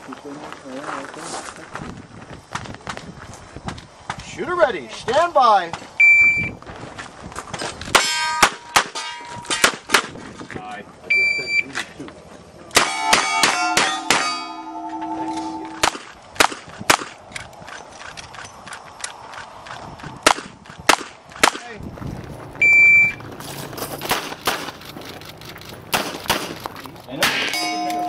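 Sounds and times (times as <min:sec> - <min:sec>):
steel plates ringing: 0:08.0 - 0:09.8, 0:12.8 - 0:16.0, 0:27.2 - 0:28.0
shot timer beep: 0:12.9 - 0:15.8, 0:22.6 - 0:23.2.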